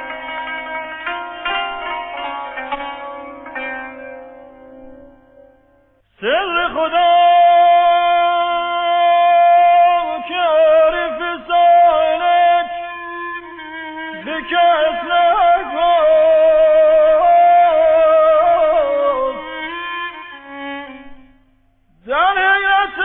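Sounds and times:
slow violin melody: 0:07.0 - 0:21.6.

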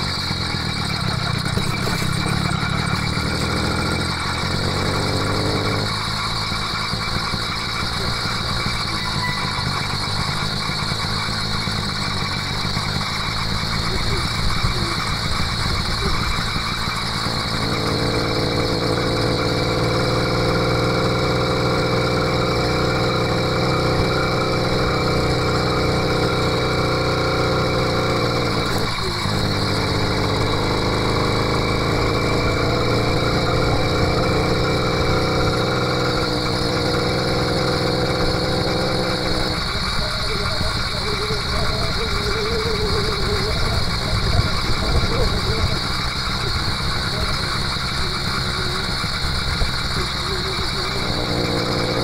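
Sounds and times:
two-stroke bicycle engine running: 0:00.0 - 0:52.0.

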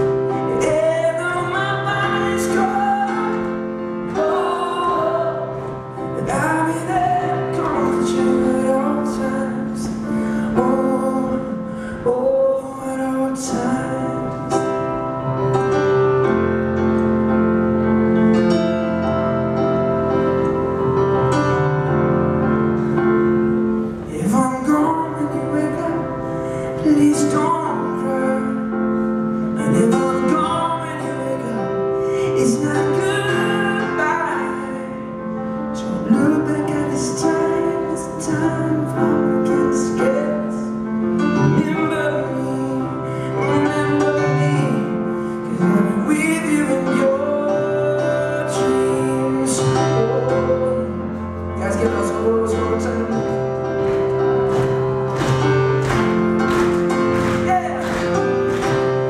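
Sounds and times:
man singing: 0:00.0 - 0:15.0, 0:24.1 - 0:54.2, 0:57.0 - 0:59.0
piano chords on keyboard: 0:00.0 - 0:59.0.

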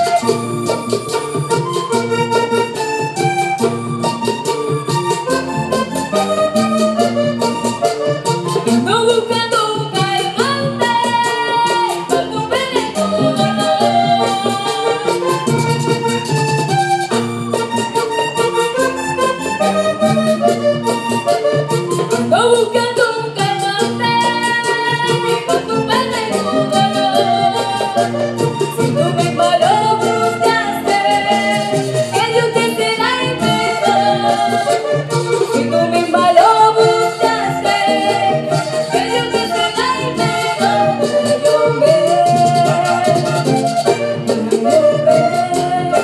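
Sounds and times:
button accordion: 0:00.0 - 0:46.0
woman singing: 0:08.8 - 0:15.3, 0:22.3 - 0:43.8, 0:44.5 - 0:46.0.

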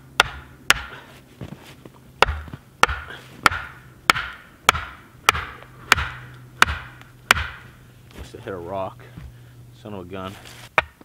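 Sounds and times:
axe striking wood: 0:00.2 - 0:01.0, 0:02.2 - 0:07.7, 0:10.8 - 0:11.0.

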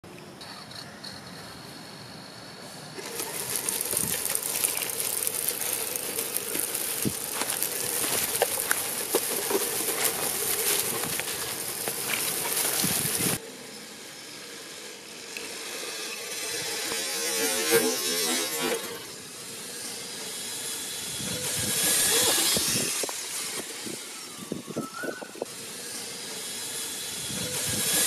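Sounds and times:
tyres crunching dry leaves: 0:03.0 - 0:13.4, 0:20.3 - 0:25.8
toy car motor whine: 0:03.0 - 0:28.0.

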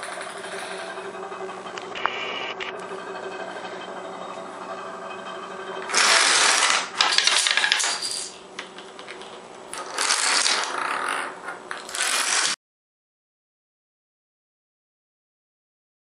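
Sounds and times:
steady hum: 0:00.0 - 0:09.8
dominoes toppling clatter: 0:05.9 - 0:08.2, 0:09.8 - 0:11.2, 0:11.8 - 0:12.6.

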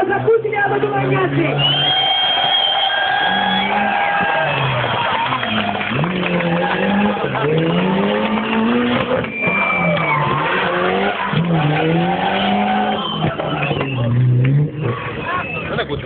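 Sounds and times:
car engine revving: 0:00.0 - 0:16.0
tyres squealing on tarmac: 0:08.7 - 0:16.0.

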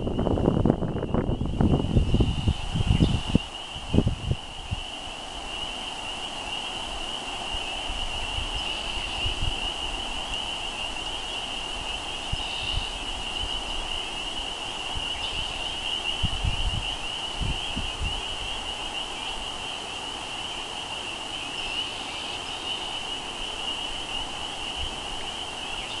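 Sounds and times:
wind bumps on microphone: 0:00.0 - 0:04.9, 0:07.9 - 0:10.3, 0:14.8 - 0:18.6
frogs calling: 0:00.0 - 0:26.0.

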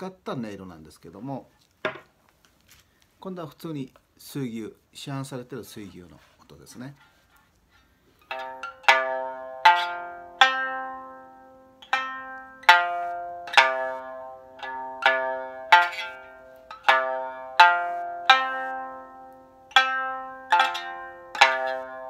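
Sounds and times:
plucked string instrument notes: 0:08.2 - 0:22.0.

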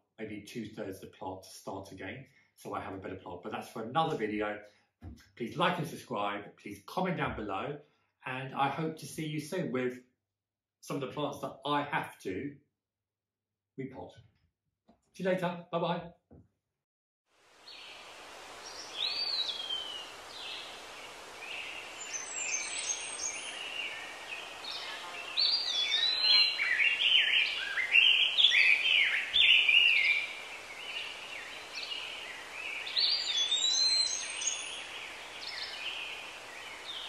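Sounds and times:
steady background hiss: 0:17.4 - 0:37.0
birds chirping and whistling: 0:18.6 - 0:20.8, 0:21.4 - 0:37.0.

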